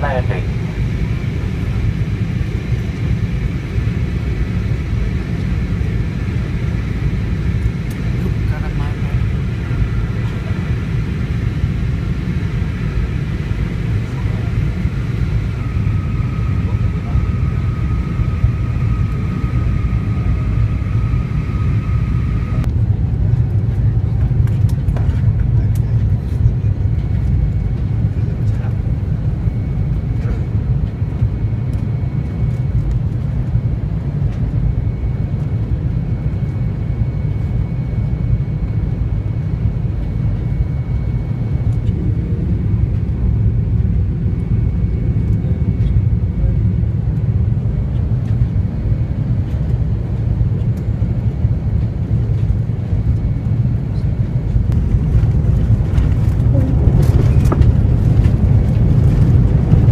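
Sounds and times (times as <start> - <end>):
faint high whine: 0.0 - 22.8
airliner cabin engine roar: 0.0 - 59.9.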